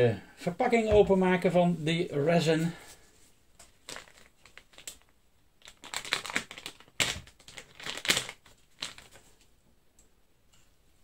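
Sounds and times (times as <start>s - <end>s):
plastic bag crinkling: 3.7s - 9.4s.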